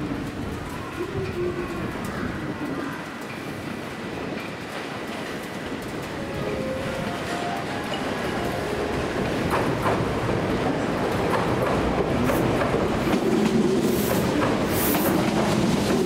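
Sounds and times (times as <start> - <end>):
train wheels clicking over rail joints: 7.9 - 16.0.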